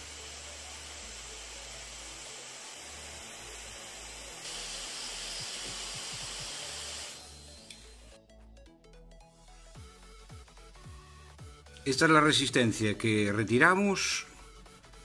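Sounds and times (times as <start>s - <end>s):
hot air hissing: 0.0s - 8.1s.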